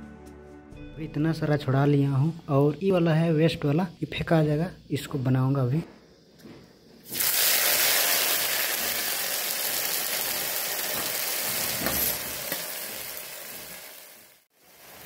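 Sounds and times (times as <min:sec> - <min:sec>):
buds sizzling in hot oil: 0:06.9 - 0:15.0.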